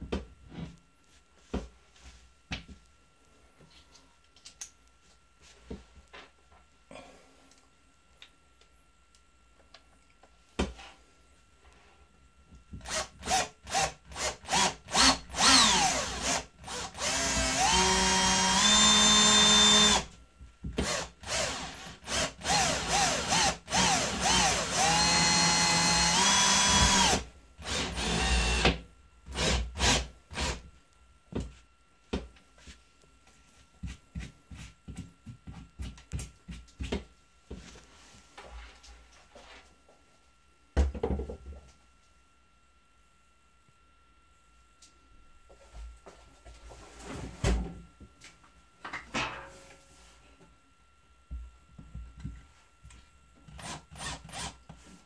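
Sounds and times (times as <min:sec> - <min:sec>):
cordless drill motor whining: 0:12.8 - 0:20.1, 0:20.8 - 0:30.6, 0:53.6 - 0:54.6.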